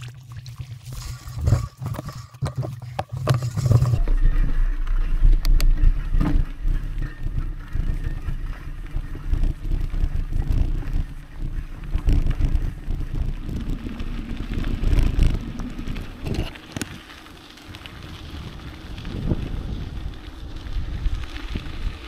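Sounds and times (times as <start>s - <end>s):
bike rattling over rough ground: 0.8s - 22.0s
tyres rumbling: 1.4s - 22.0s
wind buffeting microphone: 3.6s - 22.0s.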